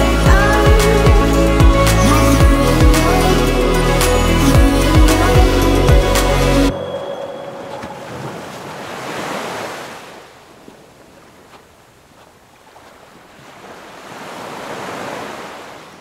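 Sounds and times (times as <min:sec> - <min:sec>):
surf washing onto a beach: 0:07.6 - 0:16.0.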